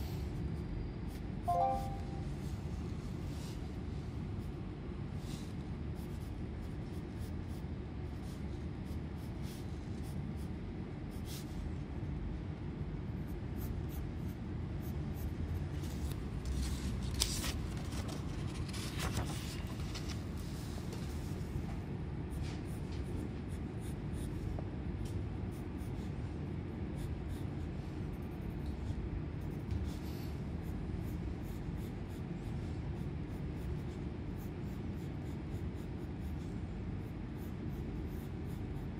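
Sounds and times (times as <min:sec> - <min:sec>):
low background hum: 0:00.0 - 0:38.9
pencil scratching on paper: 0:05.2 - 0:11.6, 0:13.1 - 0:17.6, 0:22.3 - 0:24.5, 0:25.4 - 0:38.9.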